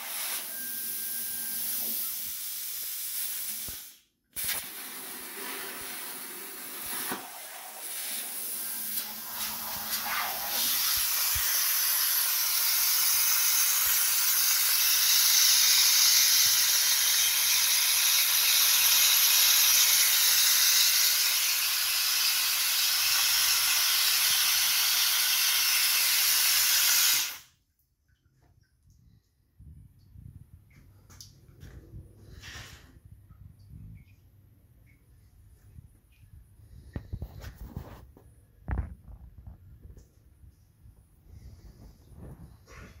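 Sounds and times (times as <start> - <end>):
plasma cutter hissing: 0.0 - 27.5.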